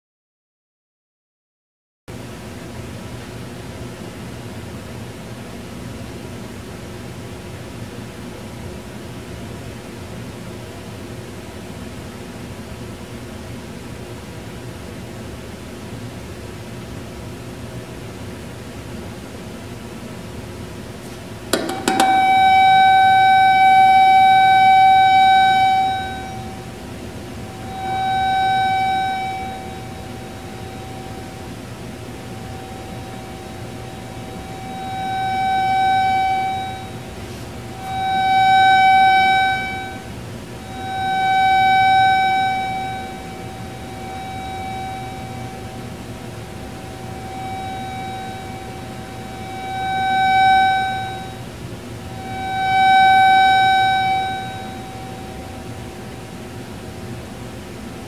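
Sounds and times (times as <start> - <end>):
high pure electronic tone: 21.5 - 57.0.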